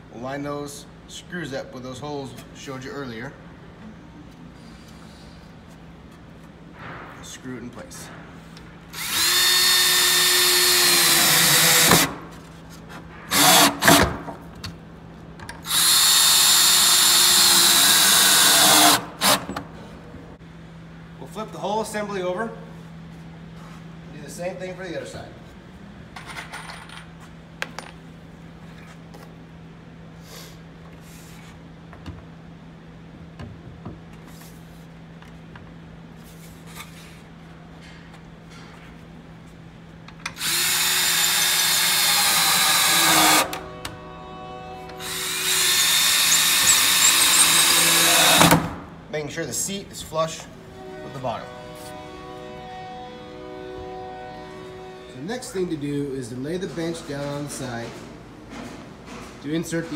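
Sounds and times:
steady low hum: 0.0s - 59.9s
cordless drill driving screws: 9.0s - 12.2s, 13.3s - 14.0s, 15.6s - 19.5s, 40.4s - 43.6s, 45.0s - 48.6s.

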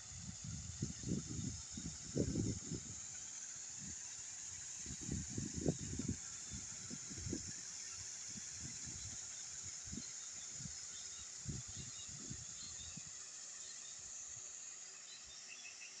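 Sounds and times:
steady high hiss: 0.0s - 16.0s
wind gusting on microphone: 0.2s - 3.0s, 4.8s - 7.6s, 11.4s - 13.0s.

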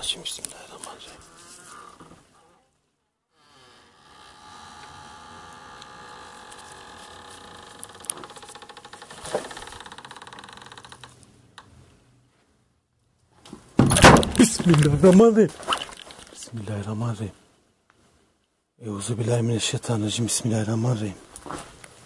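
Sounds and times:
fly buzzing: 1.1s - 2.8s.

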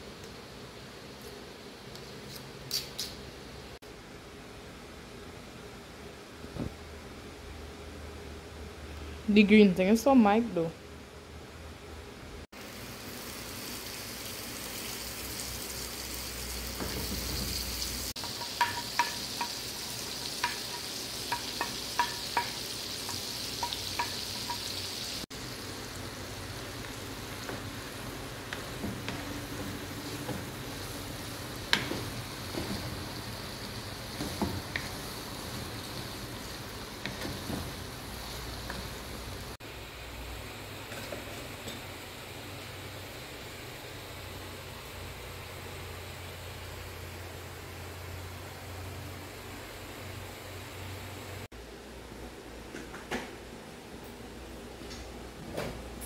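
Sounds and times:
garlic sizzling in frying pan: 12.6s - 39.6s.

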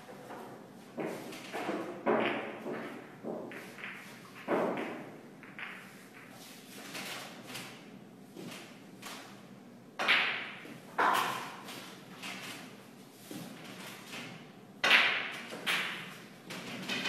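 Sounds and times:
snooker balls clacking: 0.0s - 6.5s, 10.0s - 11.7s, 14.8s - 17.0s.

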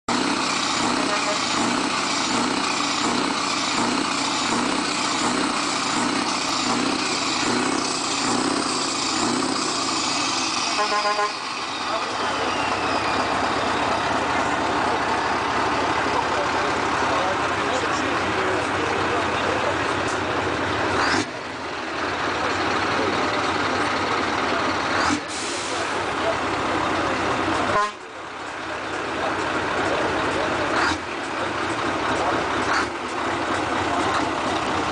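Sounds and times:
diesel engine idling: 0.1s - 34.9s
heavy trucks rushing past: 0.1s - 34.9s.

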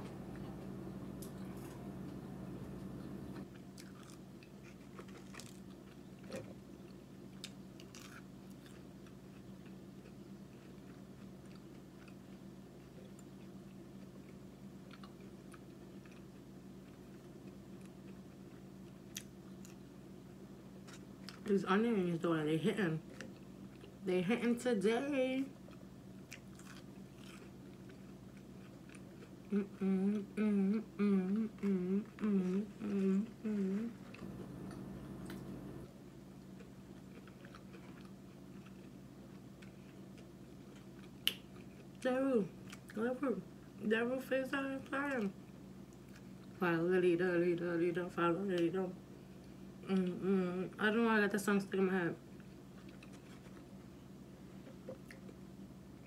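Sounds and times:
steady low hum: 0.0s - 56.0s
person chewing fries: 3.4s - 21.5s, 23.0s - 24.0s, 25.6s - 30.3s, 31.0s - 35.5s, 36.3s - 42.0s, 42.6s - 43.0s, 52.2s - 56.0s
woman humming: 29.5s - 34.1s, 49.8s - 50.8s.

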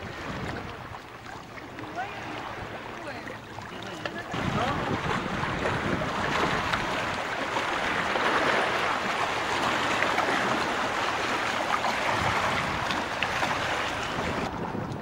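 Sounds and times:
small waves washing on sand: 0.0s - 15.0s.

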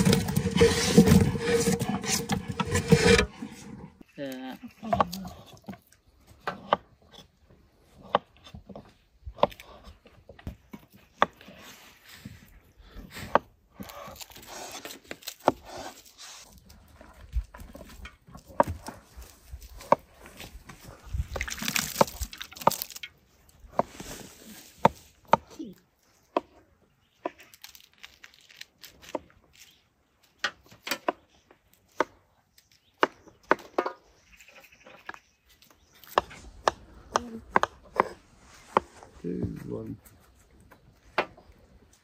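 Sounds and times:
rustling and scraping: 0.0s - 4.0s, 14.0s - 25.2s, 37.8s - 42.0s.

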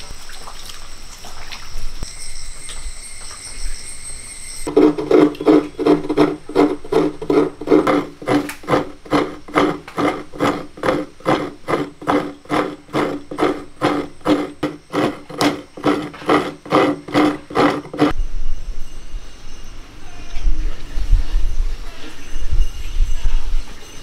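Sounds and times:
coconut scraping on metal blade: 4.7s - 18.2s.

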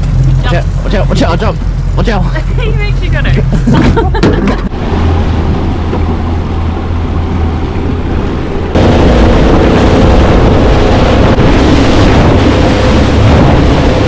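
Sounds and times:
outboard motor running: 0.0s - 14.0s
wind: 0.0s - 14.0s
rushing water: 4.7s - 14.0s.

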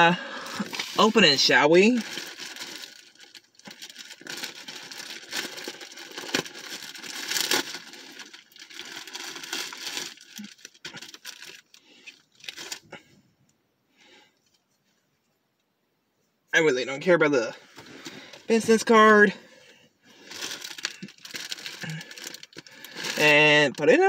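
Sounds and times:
package wrapping tearing and crinkling: 0.5s - 12.9s, 20.2s - 23.8s.

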